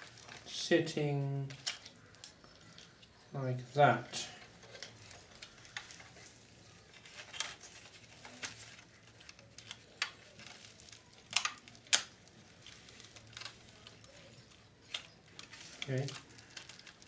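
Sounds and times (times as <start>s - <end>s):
plastic parts clicking and tapping: 1.5s - 3.1s, 6.9s - 17.0s.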